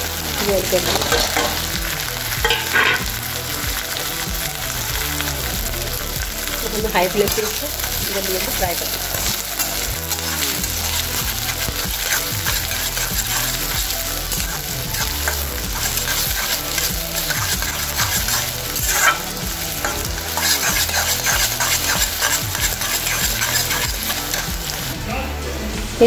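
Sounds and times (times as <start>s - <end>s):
vegetables sizzling in hot oil: 0.0s - 25.0s
pan clatter: 0.4s - 1.8s, 2.4s - 3.3s, 7.0s - 25.0s
spatula scraping a pan: 0.4s - 3.2s, 6.5s - 25.0s.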